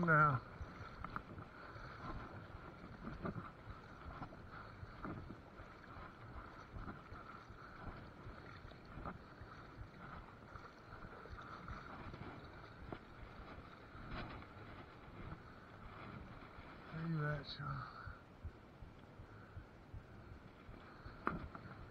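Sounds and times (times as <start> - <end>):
splashes from wading: 0.0 - 15.0
faint flowing river water: 0.0 - 21.9.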